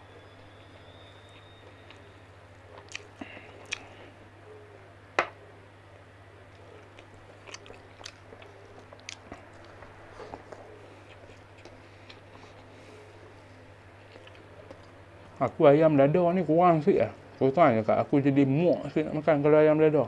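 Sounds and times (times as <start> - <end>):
steady low hum: 0.0 - 20.0
person chewing: 2.7 - 4.2, 6.5 - 13.1, 14.0 - 15.0.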